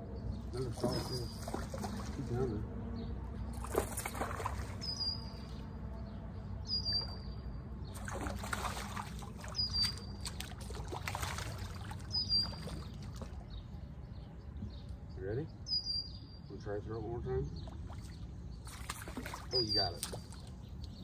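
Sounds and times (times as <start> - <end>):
water splashing and trickling: 0.4 - 5.8, 6.8 - 13.9, 17.6 - 21.0
bird chirping: 4.6 - 8.4, 9.4 - 10.6, 12.0 - 21.0.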